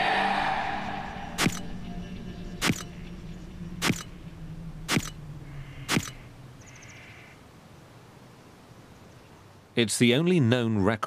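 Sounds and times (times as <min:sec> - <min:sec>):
faint low hum: 0:00.0 - 0:10.3
camera shutter clicks: 0:02.6 - 0:02.9, 0:03.8 - 0:04.1, 0:04.9 - 0:05.2, 0:05.9 - 0:06.2.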